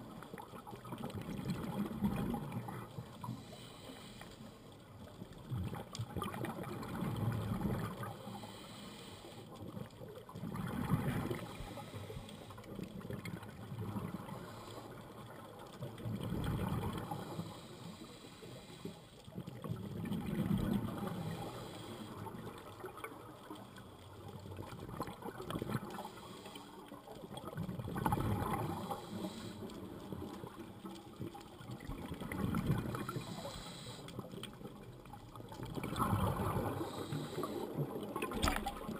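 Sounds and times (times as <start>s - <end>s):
faint steady hiss: 0.0s - 38.9s
diver exhaling bubbles underwater: 10.4s - 11.8s, 19.6s - 21.3s, 27.5s - 29.1s, 31.8s - 33.4s, 35.5s - 38.9s.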